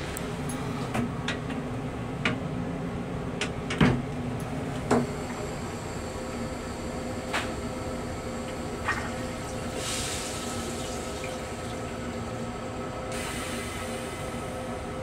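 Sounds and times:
flushing fluid rushing into bowl: 8.8s - 12.3s.

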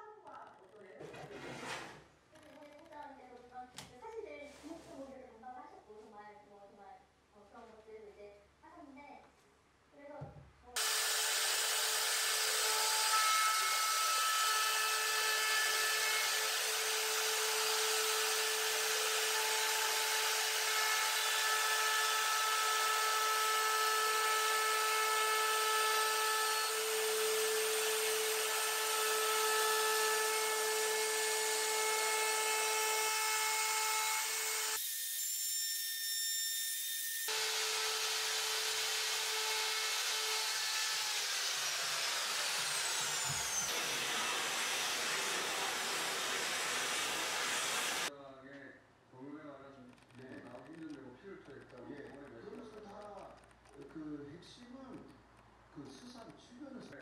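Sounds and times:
router cutting wood whine: 10.8s - 48.1s.

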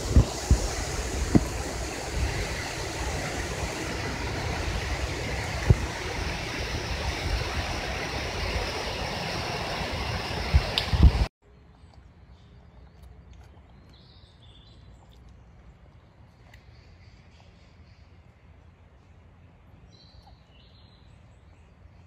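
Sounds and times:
rushing background noise: 0.0s - 11.3s.

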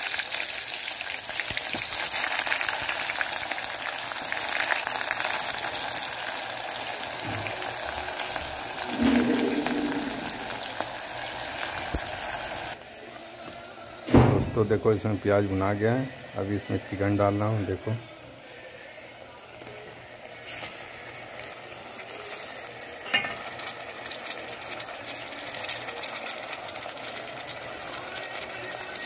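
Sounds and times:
onions sizzling in hot oil: 0.0s - 12.8s, 19.4s - 29.0s
brief low hum: 8.8s - 10.8s.

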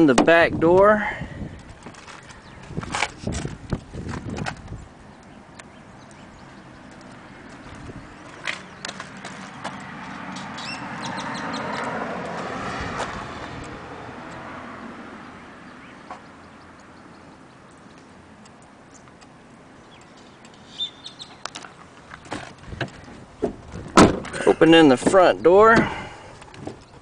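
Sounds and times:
vehicle passing by: 6.4s - 17.1s
bird chirps: 10.4s - 11.9s, 15.6s - 18.1s, 19.8s - 21.8s.

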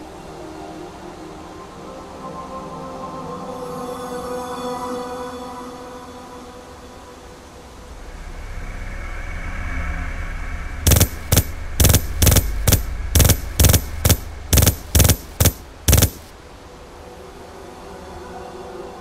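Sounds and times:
low rumbling drone: 7.5s - 16.3s
gunshots: 10.9s - 16.3s.

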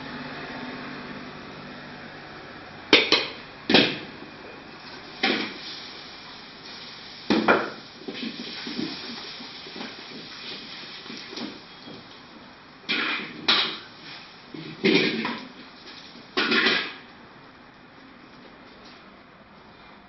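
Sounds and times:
stove and extractor rushing: 0.0s - 17.2s.

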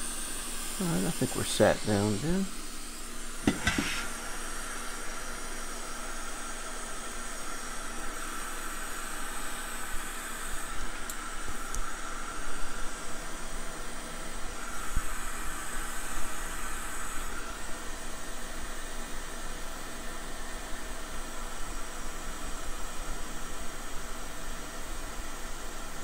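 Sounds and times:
air blowing hiss: 0.0s - 5.5s.

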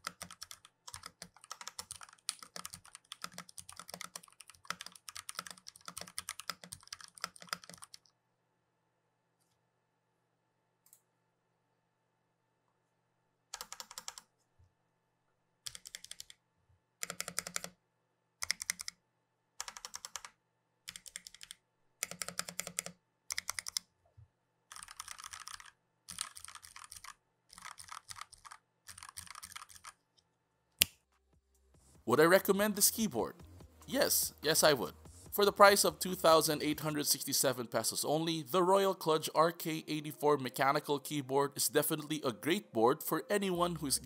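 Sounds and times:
mechanical keyboard typing: 0.0s - 8.1s, 13.6s - 14.3s, 15.7s - 16.4s, 17.0s - 17.8s, 18.4s - 19.0s, 19.6s - 23.8s, 24.7s - 30.0s.

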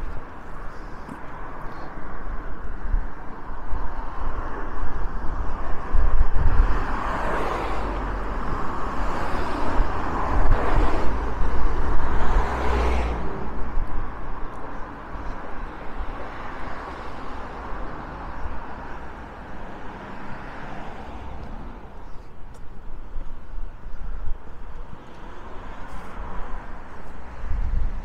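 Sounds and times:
cars passing close by: 0.0s - 28.0s
wind buffeting microphone: 2.1s - 19.7s, 26.1s - 28.0s.

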